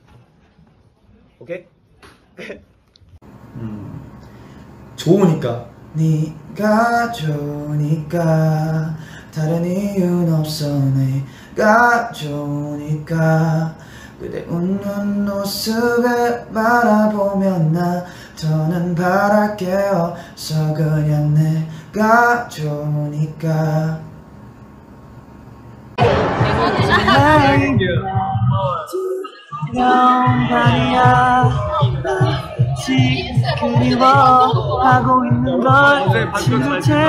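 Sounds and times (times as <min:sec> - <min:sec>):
man singing softly: 0:05.9 - 0:24.1, 0:27.4 - 0:37.0.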